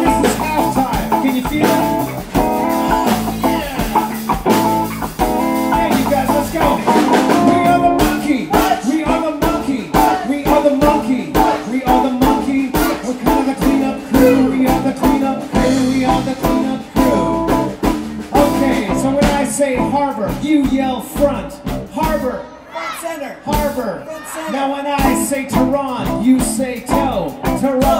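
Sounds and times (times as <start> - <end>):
electric guitar: 0.0 - 8.6, 11.3 - 19.9
drum beat: 0.0 - 22.2, 24.9 - 27.9
woman singing: 12.8 - 17.3.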